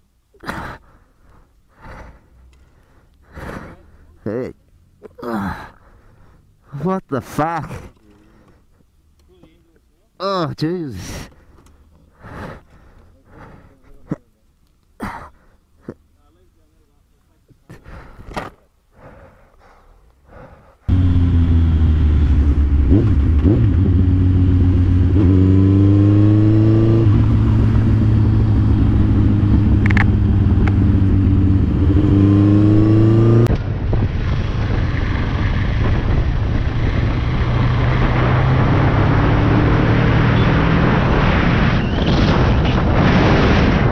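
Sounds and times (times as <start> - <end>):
motorcycle running at steady speed: 20.9 - 41.8
motorcycle engine accelerating hard: 20.9 - 43.9.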